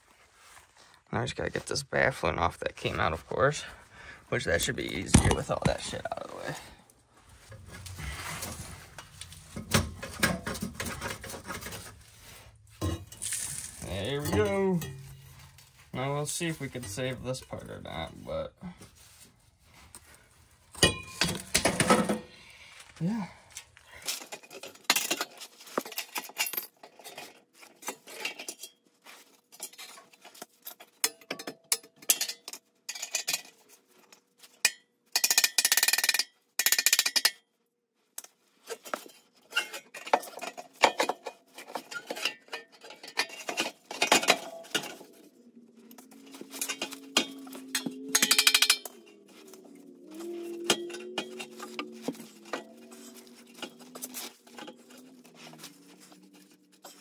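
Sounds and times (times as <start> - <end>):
dense rattling or scraping: 4.3 - 22.6, 38.5 - 57.0
faint held tones changing pitch: 45.0 - 53.6.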